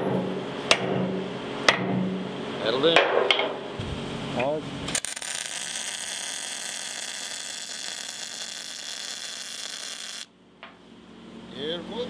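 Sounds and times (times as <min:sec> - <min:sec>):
arc welder sizzling: 0:04.0 - 0:10.4.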